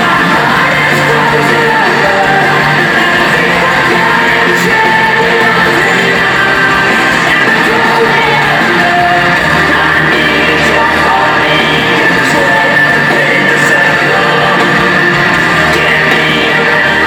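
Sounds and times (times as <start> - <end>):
live rock band: 0.0 - 17.0
person singing: 0.0 - 17.0.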